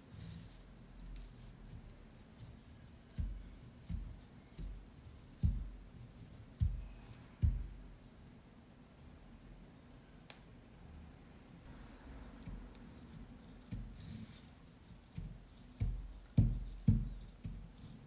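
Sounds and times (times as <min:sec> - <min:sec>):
crumbs rustling: 0:00.0 - 0:08.0
dull low thumps: 0:03.2 - 0:05.9, 0:06.6 - 0:07.9.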